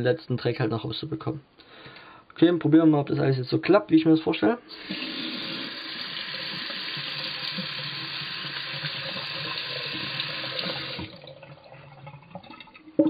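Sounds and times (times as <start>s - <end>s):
water dripping: 4.8s - 13.0s
tap water splashing into basin: 4.9s - 12.9s.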